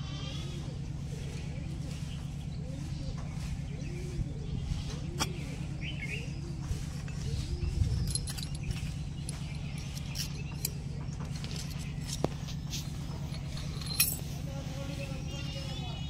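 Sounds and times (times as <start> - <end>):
steady low hum: 0.0 - 16.0
metal tools clinking together: 7.1 - 14.6.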